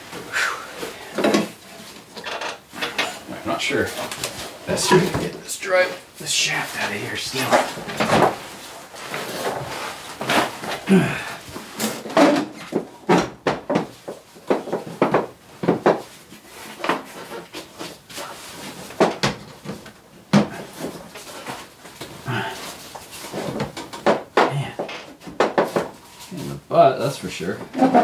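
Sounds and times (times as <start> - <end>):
hand tools and metal parts clanking: 1.1 - 5.6.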